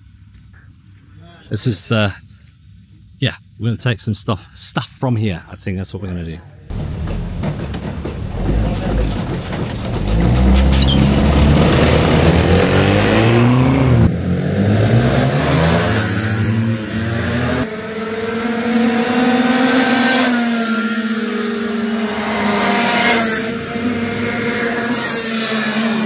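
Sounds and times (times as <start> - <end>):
distant karts lapping track: 6.7 - 26.0
go-kart engines revving: 6.7 - 26.0.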